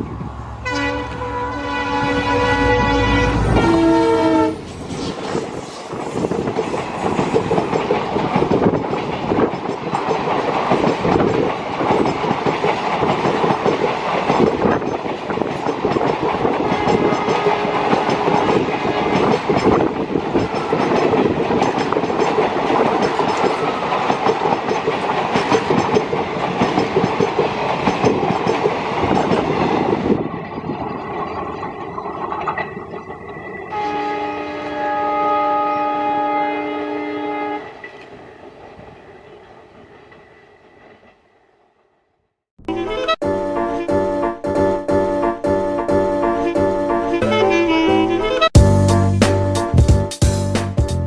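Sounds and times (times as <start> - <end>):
train rushing past: 0.0 - 35.0
locomotive horn blast: 0.5 - 4.7, 16.6 - 18.4, 33.7 - 37.8, 42.6 - 49.2
wheels clattering over rail joints: 4.6 - 33.7.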